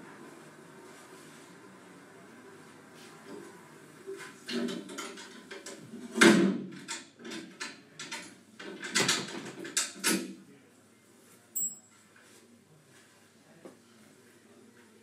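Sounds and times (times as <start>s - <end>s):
knocks and clatters: 4.4s - 10.3s.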